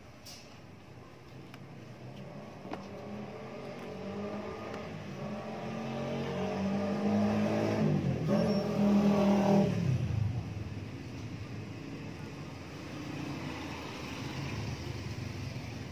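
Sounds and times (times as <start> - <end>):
vehicle engine passing by: 2.2 - 10.7, 12.8 - 15.9.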